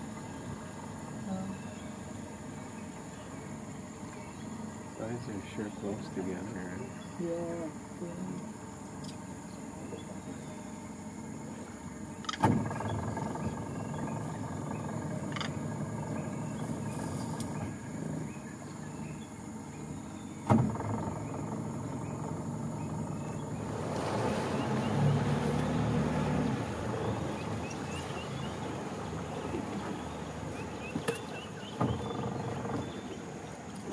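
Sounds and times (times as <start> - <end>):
boat motor idling: 0.0 - 33.9
insects droning: 0.0 - 33.9
sharp knocks: 20.4 - 21.2.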